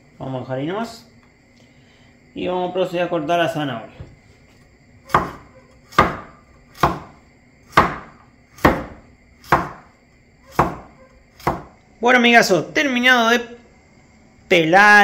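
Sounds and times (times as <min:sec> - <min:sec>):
cleaver chopping on wooden board: 0:05.1 - 0:09.9, 0:10.5 - 0:11.7.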